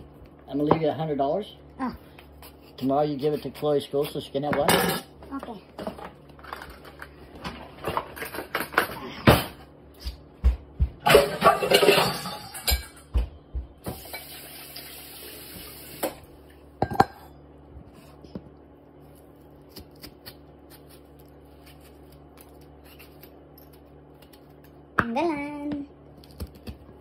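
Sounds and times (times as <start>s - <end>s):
steady low hum: 0.0s - 13.9s, 16.1s - 27.0s
dishes and utensils clattering: 4.6s - 5.1s, 7.8s - 9.6s, 11.0s - 13.1s, 16.8s - 17.3s.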